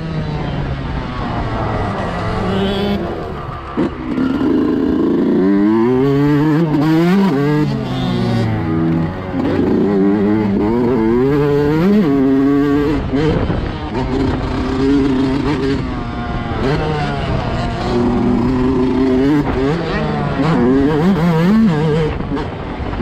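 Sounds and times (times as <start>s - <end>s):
two-stroke motorcycle engine revving: 0.0s - 23.0s
wind noise: 8.4s - 23.0s.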